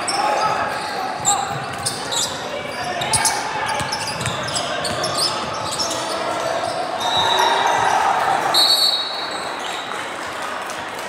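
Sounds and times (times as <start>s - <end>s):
high shoe squeaks: 0.0s - 7.4s
voices echoing in hall: 0.0s - 11.0s
basketball bouncing on court: 3.1s - 5.9s.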